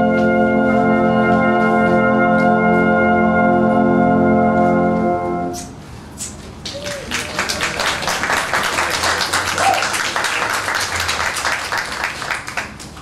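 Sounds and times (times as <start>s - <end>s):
band music: 0.0s - 5.8s
audience applauding: 6.6s - 13.0s.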